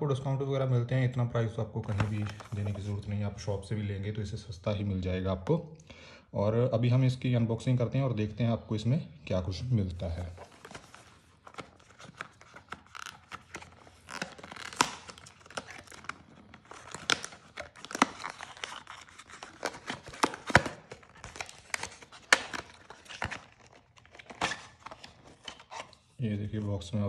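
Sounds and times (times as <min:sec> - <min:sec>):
tape peeling from box: 0:10.4 - 0:26.0.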